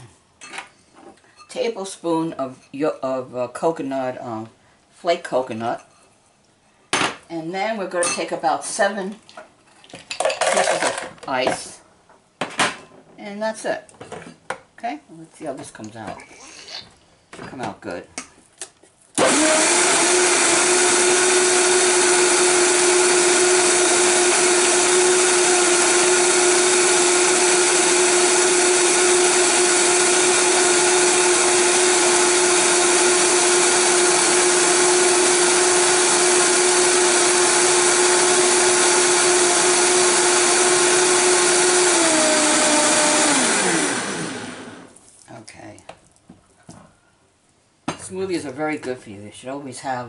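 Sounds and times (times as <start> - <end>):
blender motor whining: 19.2 - 45.0.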